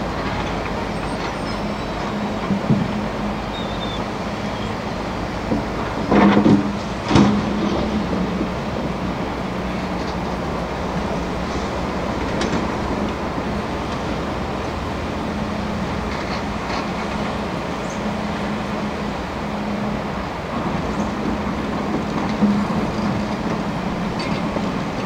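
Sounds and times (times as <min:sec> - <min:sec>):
excavator diesel engine drone: 0:00.0 - 0:25.0
fast-flowing river water: 0:00.0 - 0:25.0.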